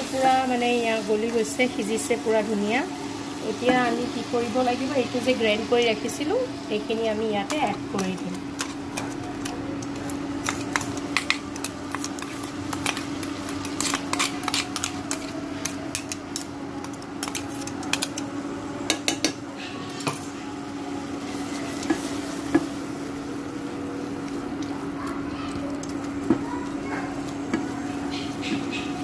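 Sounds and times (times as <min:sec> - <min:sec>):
light sizzle: 0:00.0 - 0:19.2, 0:20.0 - 0:29.0
cooktop hum: 0:00.0 - 0:29.0
plastic spoon scraping a pan: 0:10.4 - 0:16.2.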